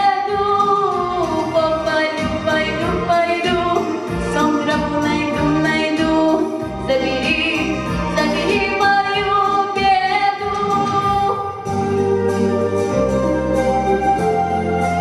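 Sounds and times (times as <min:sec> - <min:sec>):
girl singing into microphone: 0:00.0 - 0:11.7
instrumental backing music: 0:00.0 - 0:15.0.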